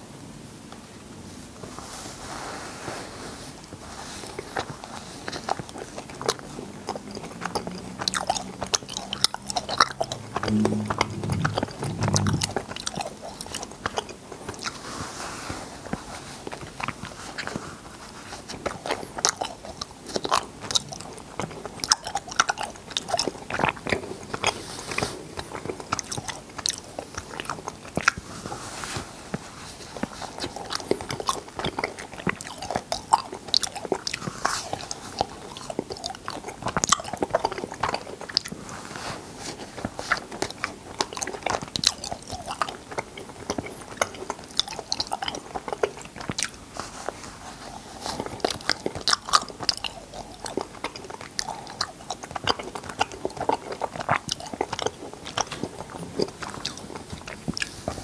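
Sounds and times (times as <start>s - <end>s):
wet mouth clicks and lip smacks: 5.8s - 13.0s.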